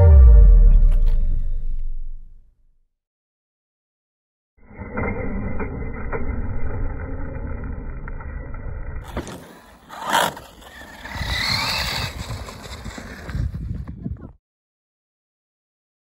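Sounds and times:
loud scrape or impact: 0:00.0 - 0:02.4
rc car tyre and chassis rumble: 0:04.6 - 0:14.3.

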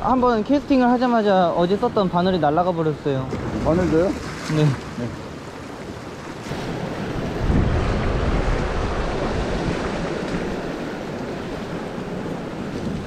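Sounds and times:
wind buffeting microphone: 0:00.0 - 0:13.0
sea surf washing in: 0:03.3 - 0:13.0.

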